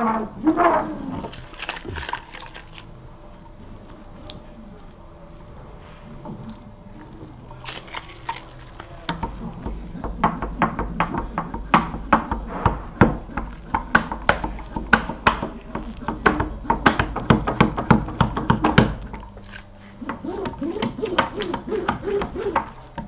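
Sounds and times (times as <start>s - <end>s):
metal roller clicking on fibreglass: 7.4s - 23.0s.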